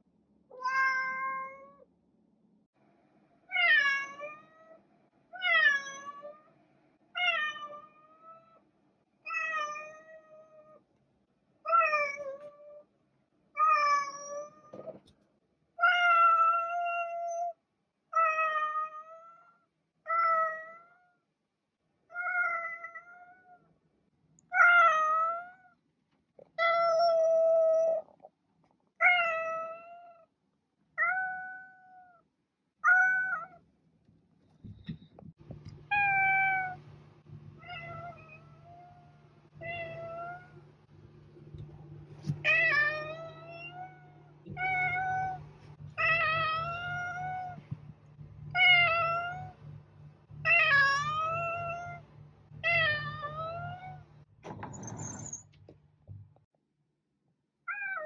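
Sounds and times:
cat meowing: 0:00.6 - 0:01.8.

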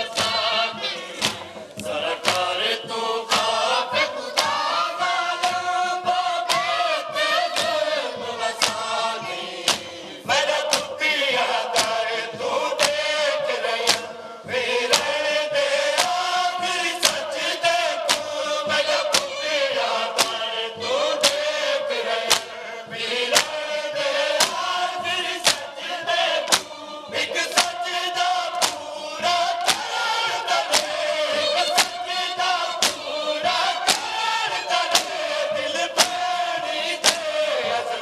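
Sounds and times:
men chanting in chorus: 0:00.0 - 0:38.0
hands slapping chests: 0:01.2 - 0:02.7, 0:06.5 - 0:06.8, 0:08.6 - 0:08.9, 0:09.6 - 0:09.9, 0:10.7 - 0:10.9, 0:11.8 - 0:12.0, 0:12.8 - 0:13.1, 0:13.8 - 0:14.1, 0:16.0 - 0:16.3, 0:18.0 - 0:18.3, 0:21.2 - 0:21.5, 0:22.3 - 0:22.5, 0:23.3 - 0:23.7, 0:24.4 - 0:24.6, 0:25.4 - 0:25.7, 0:26.4 - 0:26.8, 0:27.4 - 0:27.8, 0:28.5 - 0:28.9, 0:29.5 - 0:35.2, 0:36.0 - 0:36.4, 0:37.0 - 0:37.4.

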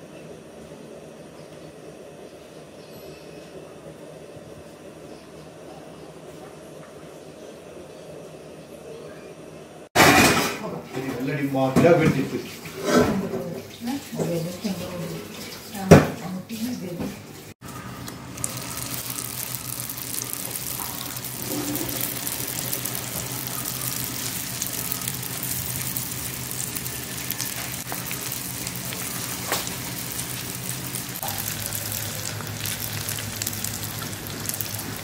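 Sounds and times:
food deep-frying in oil: 0:13.6 - 0:35.0.

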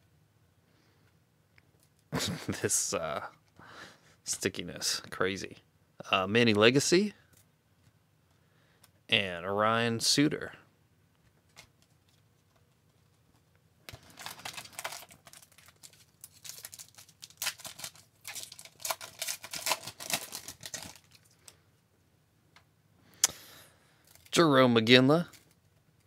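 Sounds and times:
card pack wrapper crinkling: 0:13.9 - 0:21.6, 0:24.0 - 0:24.4, 0:25.2 - 0:25.6.

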